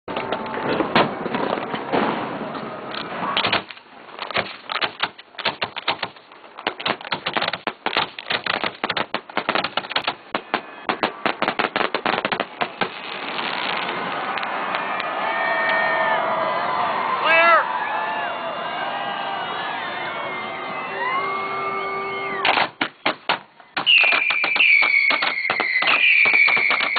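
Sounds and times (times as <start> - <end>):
firework crackling: 3.6 - 15.0, 22.4 - 26.9
firework booms: 6.8 - 14.3, 22.4 - 26.9.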